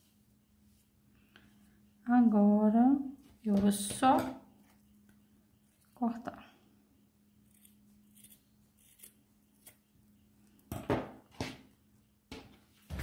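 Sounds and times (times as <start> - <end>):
scissors snipping yarn: 7.5 - 9.8.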